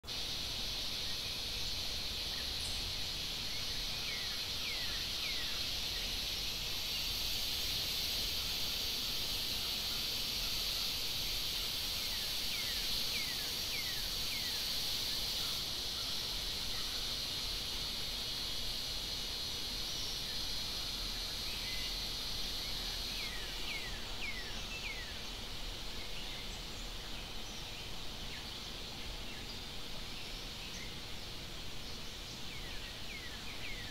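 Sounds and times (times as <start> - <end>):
high insect drone: 0.0 - 33.9.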